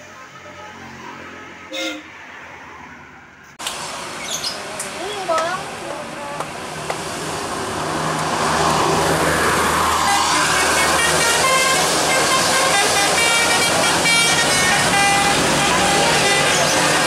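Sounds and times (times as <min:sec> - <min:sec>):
musical air horn melody: 0:01.7 - 0:02.1, 0:10.0 - 0:17.0
bus engine running: 0:03.5 - 0:17.0.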